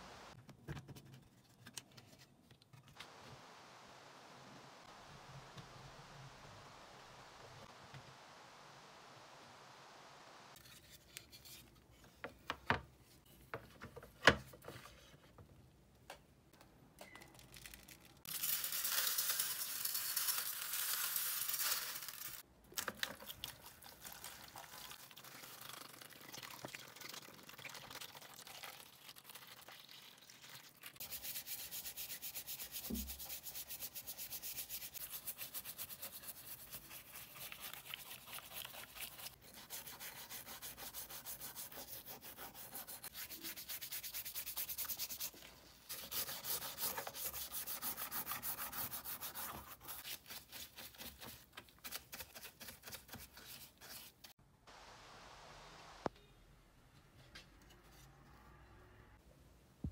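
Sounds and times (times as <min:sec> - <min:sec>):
water pouring over plastic: 0:17.5 - 0:31.0
brush scrubbing in soapy water: 0:24.6 - 0:54.3.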